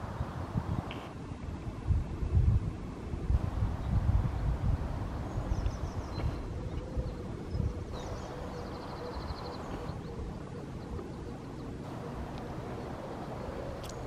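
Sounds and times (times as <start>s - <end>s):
wind rumbling on microphone: 0.0s - 14.0s
songbird trilling: 5.3s - 14.0s
distant hum: 7.9s - 14.0s.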